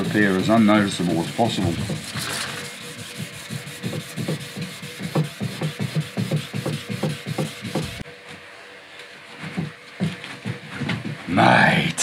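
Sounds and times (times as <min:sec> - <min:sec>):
sandpaper rubbing strokes: 0:00.0 - 0:08.0.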